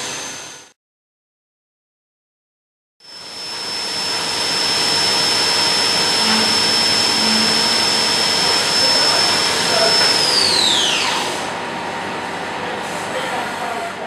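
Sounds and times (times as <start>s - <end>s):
high spindle whine: 3.0s - 12.3s.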